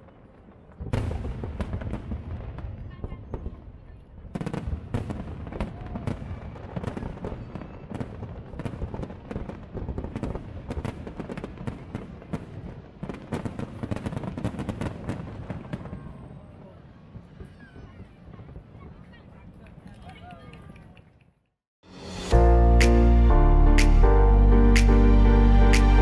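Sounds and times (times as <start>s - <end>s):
fireworks bursting and crackling: 0.0s - 19.8s.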